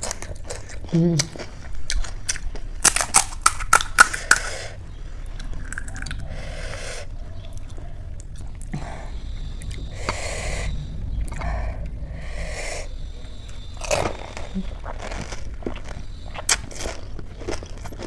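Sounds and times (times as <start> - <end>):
crisp shells crunching: 1.8 - 4.5, 13.8 - 18.0
breathy noises: 4.1 - 17.2.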